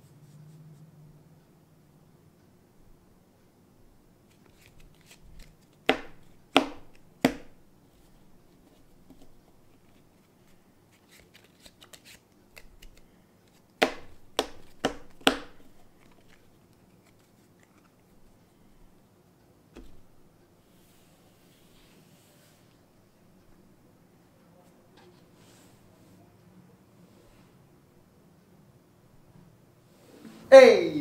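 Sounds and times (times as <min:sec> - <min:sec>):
playing cards clicking and rustling: 0:04.2 - 0:07.6, 0:08.6 - 0:18.3
card packets slapping: 0:10.9 - 0:17.8.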